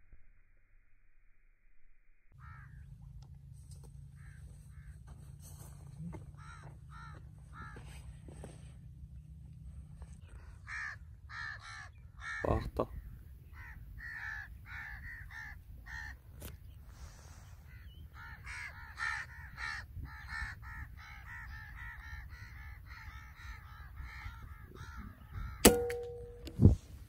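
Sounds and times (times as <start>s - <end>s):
bird calling: 10.2s - 26.5s
air rifle shots: 25.6s - 26.7s.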